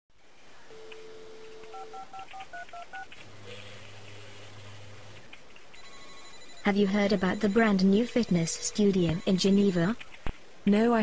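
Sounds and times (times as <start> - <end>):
telephone dial tone: 0.7 - 3.0
touch-tone keypad beeps: 0.7 - 3.1, 5.8 - 9.9.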